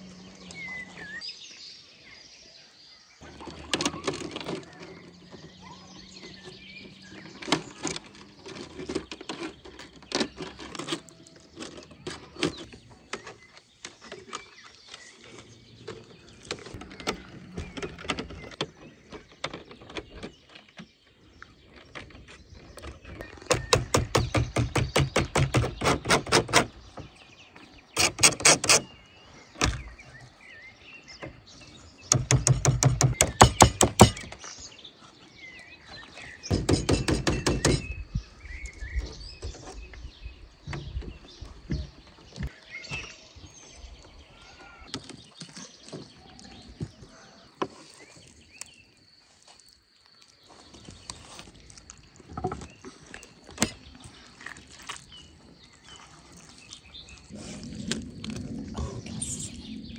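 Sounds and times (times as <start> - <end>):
birds chirping: 0.0 - 59.9
sharp knocks: 23.5 - 26.8, 32.1 - 34.4, 36.5 - 38.0.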